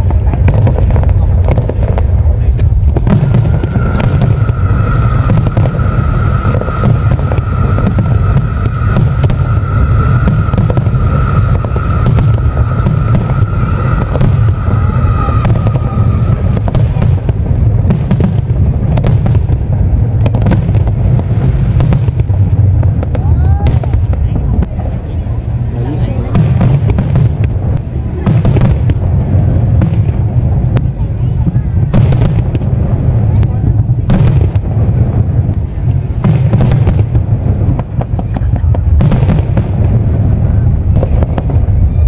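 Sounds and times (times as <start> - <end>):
fireworks booming: 0.0 - 42.0
sharp bangs and crackle: 0.0 - 42.0
steady high tone: 3.3 - 16.7.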